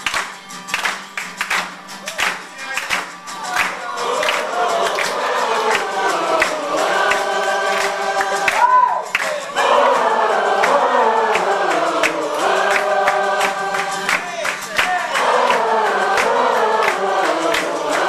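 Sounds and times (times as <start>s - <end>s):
acoustic guitar: 0.0s - 18.0s
drum beat: 2.8s - 18.0s
audience singing along: 3.6s - 18.0s.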